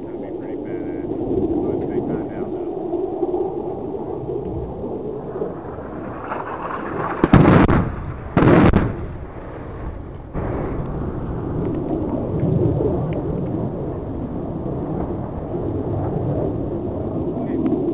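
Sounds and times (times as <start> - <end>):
long rumble: 0.0 - 17.9
heavy bomb blasts: 6.0 - 11.6.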